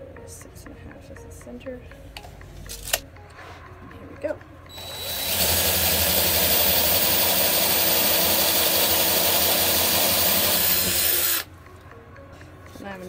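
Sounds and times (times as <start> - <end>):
cordless drill boring wood: 4.7 - 11.5.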